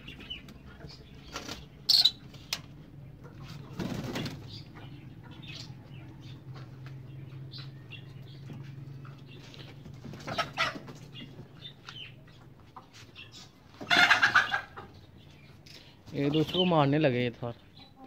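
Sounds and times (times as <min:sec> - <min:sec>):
birds flapping wings: 0:03.7 - 0:04.6.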